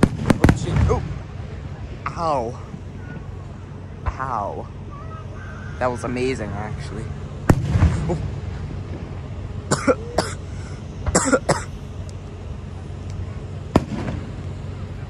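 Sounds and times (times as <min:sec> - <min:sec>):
steady low rumble: 0:00.0 - 0:15.0
person coughing: 0:09.7 - 0:10.5, 0:11.1 - 0:11.7.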